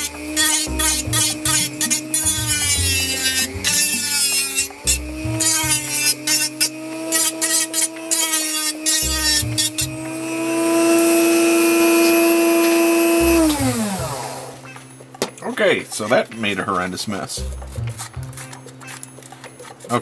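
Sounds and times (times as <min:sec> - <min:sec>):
rotary tool grinding plastic: 0:00.0 - 0:14.3.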